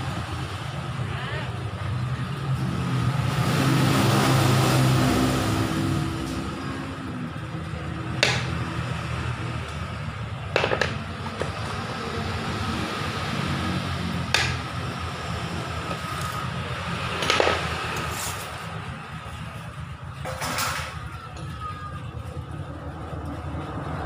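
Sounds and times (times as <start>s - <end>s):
sharp clicks and knocks on engine: 8.0s - 9.8s, 10.4s - 11.8s, 14.3s - 14.8s, 15.9s - 18.1s.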